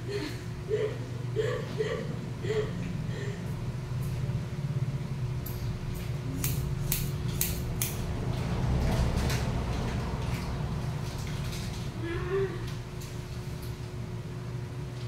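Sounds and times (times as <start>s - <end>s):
steady low hum: 0.0s - 15.0s
scissors snipping hair: 5.4s - 8.0s.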